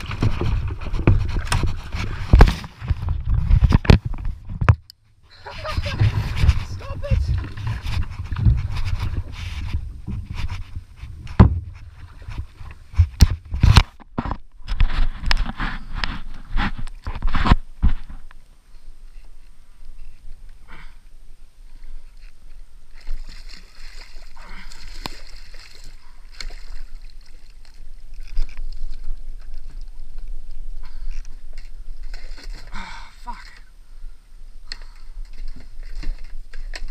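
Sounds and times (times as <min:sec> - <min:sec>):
fish splashing and thrashing: 0:00.0 - 0:04.6, 0:05.4 - 0:18.2, 0:22.0 - 0:33.7
wind rumble on microphone: 0:00.0 - 0:04.8, 0:05.5 - 0:18.3.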